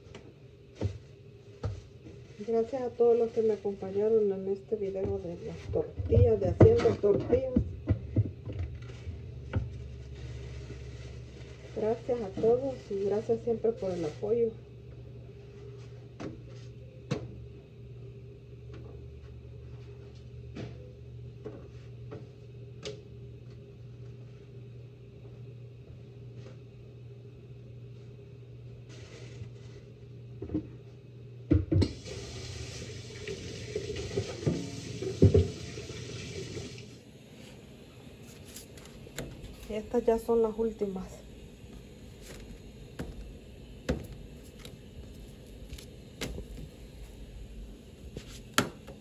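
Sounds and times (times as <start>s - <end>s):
steady low hum: 0.0s - 49.0s
water running from a tap: 31.8s - 36.9s.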